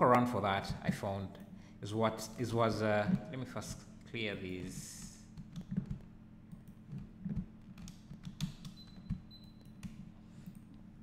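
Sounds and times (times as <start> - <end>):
faint steady hum: 0.0 - 11.0
computer mouse and keyboard clicks: 5.4 - 10.6.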